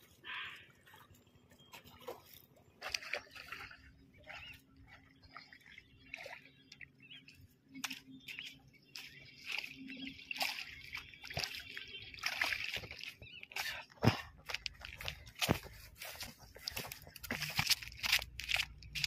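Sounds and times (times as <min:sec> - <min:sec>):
fish splashing in shallow water: 0:00.0 - 0:19.0.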